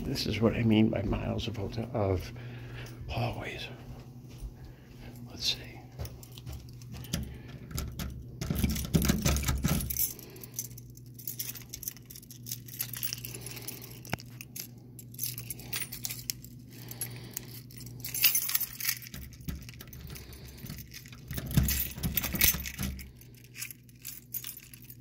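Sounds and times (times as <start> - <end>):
steady low hum: 0.0 - 25.0
keys jingling: 5.5 - 25.0.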